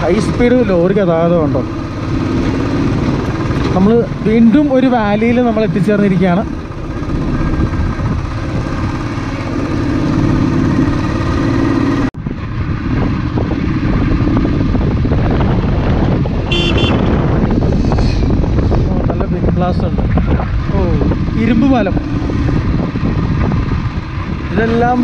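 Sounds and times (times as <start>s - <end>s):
motorcycle engine running: 0.0s - 25.0s
wind and road noise: 0.0s - 25.0s
horn toot: 16.4s - 17.3s.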